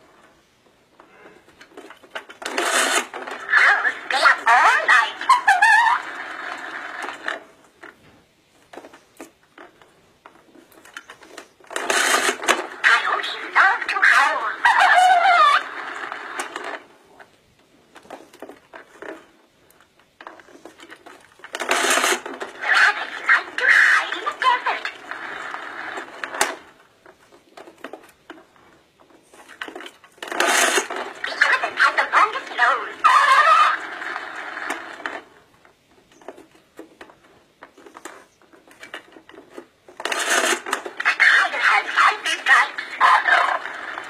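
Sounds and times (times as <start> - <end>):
toy recorded playback: 1.0 - 8.0, 9.6 - 17.3, 17.9 - 44.0
toy recorded voice: 3.4 - 6.2, 12.8 - 15.8, 22.6 - 25.4, 31.1 - 33.9, 41.0 - 44.0
plastic toy clicks: 29.5 - 31.8, 38.8 - 41.2.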